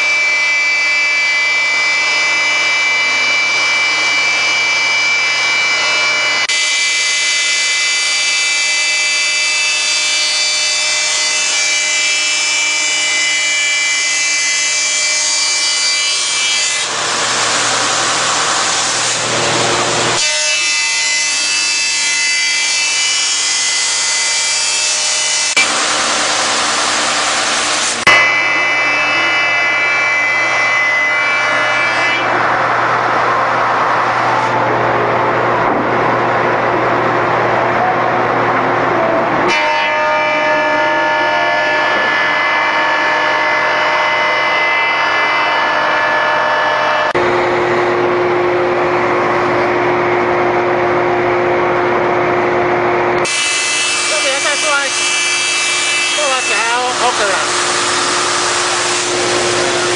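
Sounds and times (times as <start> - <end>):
belt sander humming: 53.1 - 59.9.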